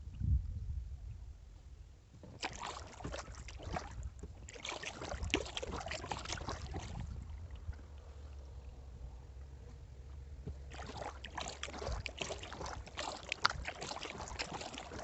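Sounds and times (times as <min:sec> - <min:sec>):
low steady rumble: 0:00.0 - 0:02.2, 0:05.1 - 0:13.6
paddle splashing water: 0:02.2 - 0:15.0.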